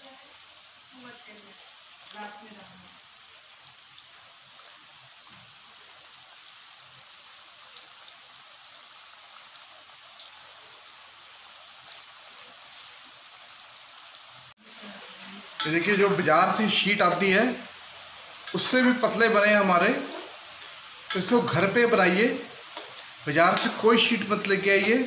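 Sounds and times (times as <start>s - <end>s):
food deep-frying in hot oil: 0.0s - 25.0s
oil crackling and popping: 0.9s - 14.7s, 15.4s - 25.0s.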